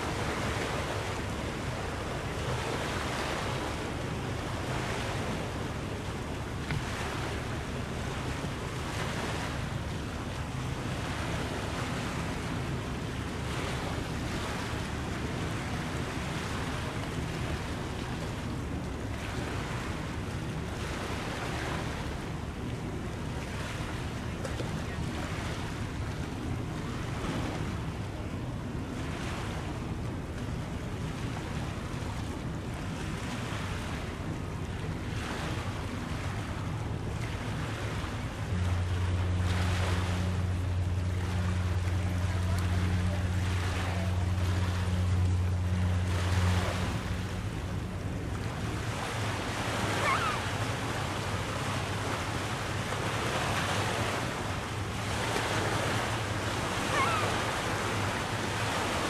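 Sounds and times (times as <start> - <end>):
small waves washing in: 0.0 - 59.0
steady low hum: 33.8 - 59.0.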